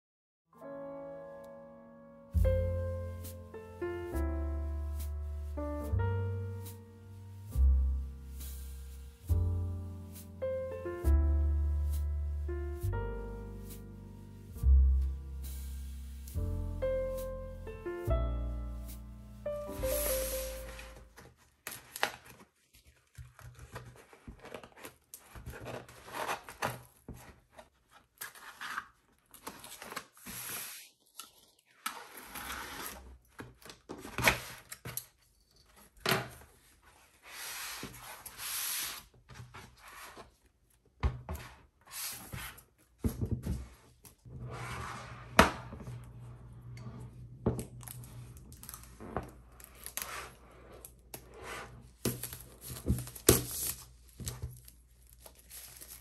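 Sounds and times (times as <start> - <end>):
paper and cardboard tearing: 21.6 - 26.9, 48.5 - 56.0.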